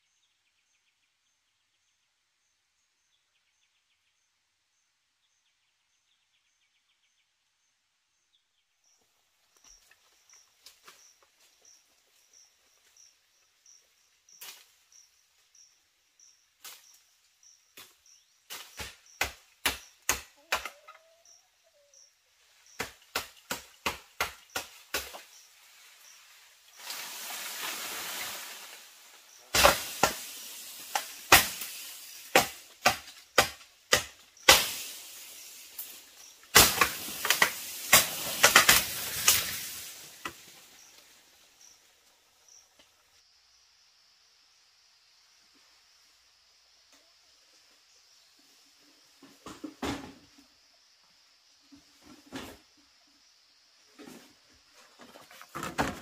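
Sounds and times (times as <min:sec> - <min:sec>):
faint insect chirping: 0:00.0 - 0:56.0
rustling: 0:24.6 - 0:33.3.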